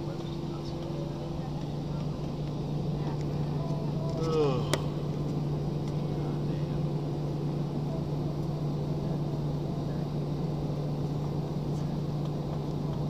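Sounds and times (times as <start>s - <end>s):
airliner cabin engine drone: 0.0s - 13.0s.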